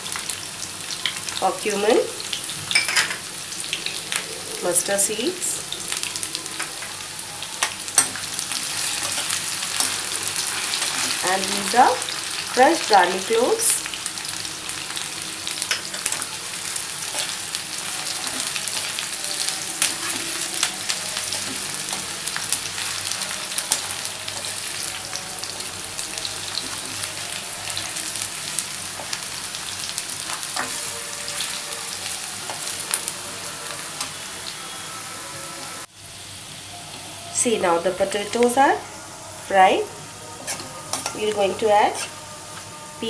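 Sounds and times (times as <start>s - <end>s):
food sizzling in hot oil: 0.0s - 42.7s
metal spoon scraping a pan: 7.6s - 11.2s, 15.6s - 25.6s, 29.9s - 34.2s, 40.4s - 42.2s.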